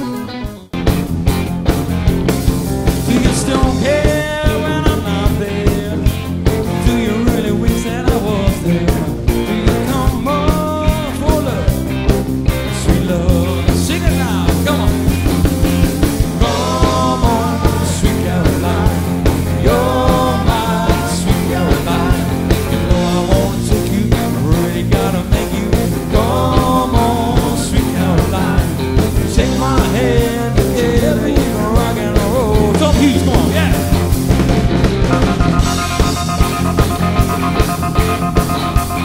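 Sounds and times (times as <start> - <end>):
bass guitar: 0.0 - 39.0
electric guitar: 0.0 - 39.0
drum beat: 0.8 - 39.0
man singing: 2.9 - 12.0, 12.6 - 15.3, 16.2 - 34.1.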